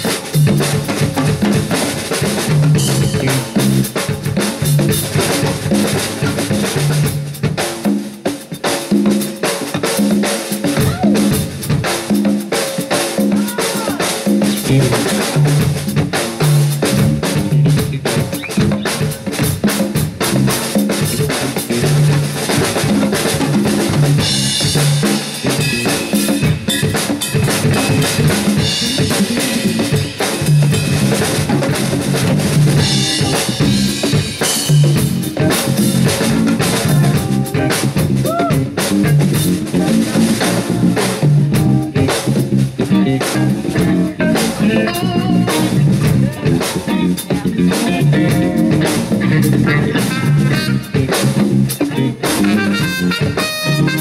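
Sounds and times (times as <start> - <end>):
bass line: 0.0 - 7.7, 13.4 - 54.0
congas: 0.0 - 54.0
drum kit beat: 0.0 - 54.0
electric guitar: 13.3 - 54.0.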